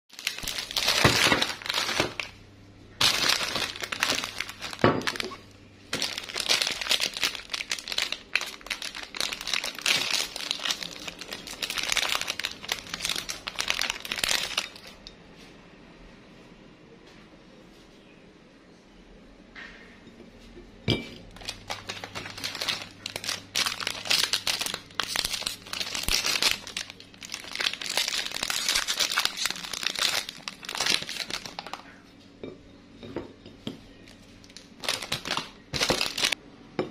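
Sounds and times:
plastic wrapper crinkling: 0.1s - 2.4s, 3.0s - 15.0s, 21.2s - 32.0s, 34.0s - 36.4s.

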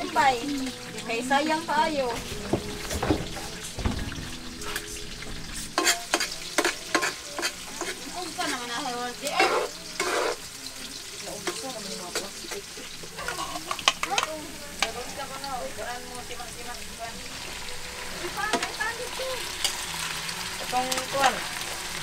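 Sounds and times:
vegetables sizzling in a wok: 0.0s - 22.0s
metal spatula scraping a pan: 4.6s - 10.6s, 11.4s - 15.3s.

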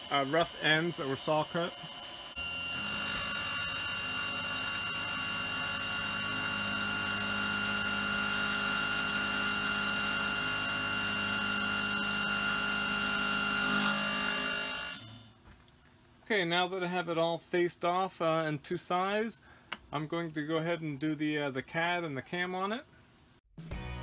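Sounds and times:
mill spindle whining: 0.0s - 15.4s.

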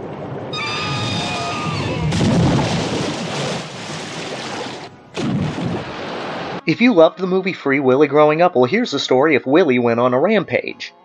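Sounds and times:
boom and crash of water: 0.0s - 6.6s
killer whale whistling squeal: 0.5s - 2.2s.

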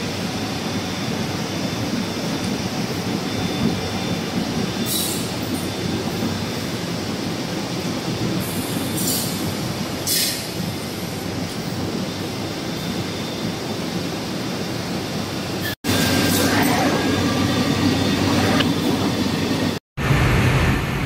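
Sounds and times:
short high hisses: 10.1s - 10.5s
machinery low rumble: 16.4s - 21.0s.

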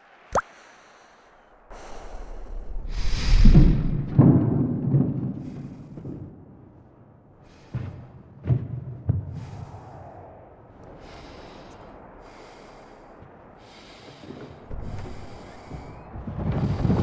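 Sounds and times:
steady rushing noise: 0.0s - 4.8s, 9.3s - 17.0s.

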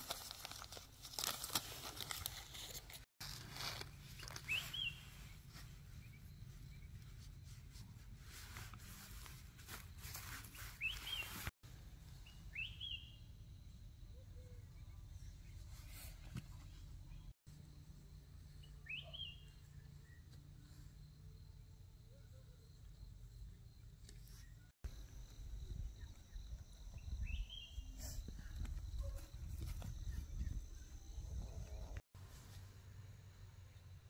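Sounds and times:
crackling and rustling: 0.0s - 6.0s
short high bird chirps: 18.8s - 19.5s.

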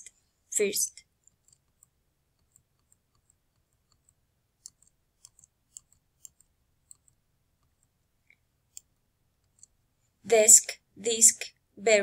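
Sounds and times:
mouse scroll wheel clicks: 1.2s - 9.8s.

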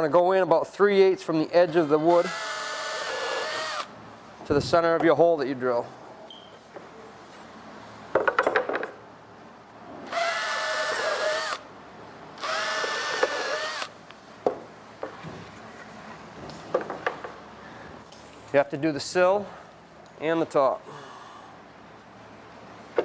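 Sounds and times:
power drill boring holes: 1.7s - 3.9s, 10.1s - 11.6s, 12.4s - 13.9s.

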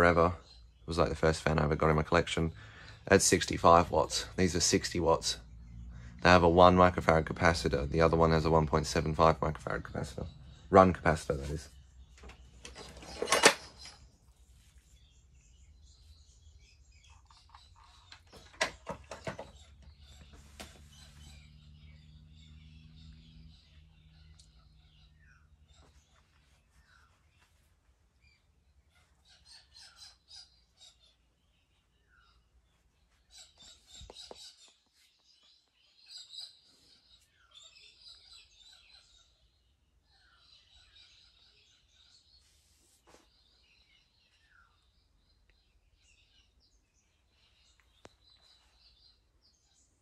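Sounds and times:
faint bird chirps: 0.0s - 50.0s
sharp clicks and knocks: 12.2s - 14.0s, 17.2s - 20.0s.

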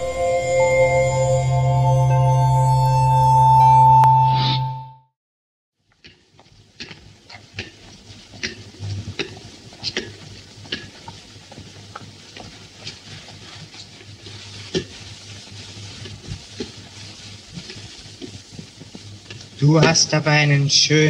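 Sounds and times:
low hum: 0.0s - 4.8s
film soundtrack hiss and crackle: 5.8s - 21.0s.

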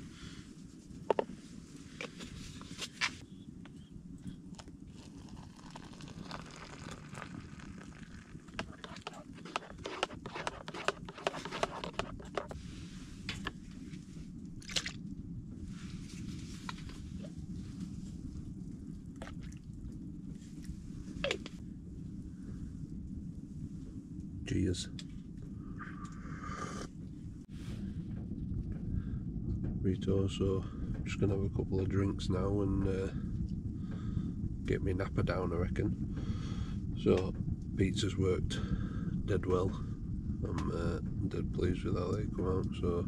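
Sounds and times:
steady low hum: 0.0s - 43.0s
crunching and chewing pizza: 4.5s - 12.6s.

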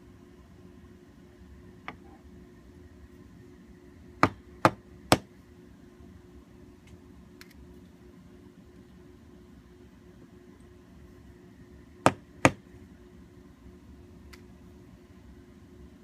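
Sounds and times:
small hammer tapping: 4.2s - 5.3s.

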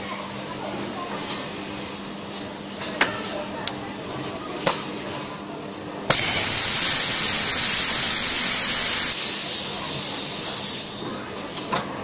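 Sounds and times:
welding machine high-pitched hiss: 6.1s - 11.0s.

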